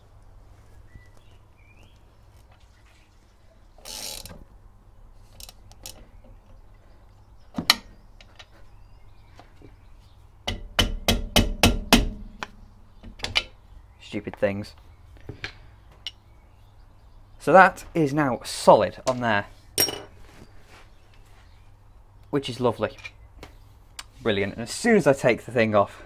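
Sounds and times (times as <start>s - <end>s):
sharp clicks and knocks: 10.4s - 13.6s.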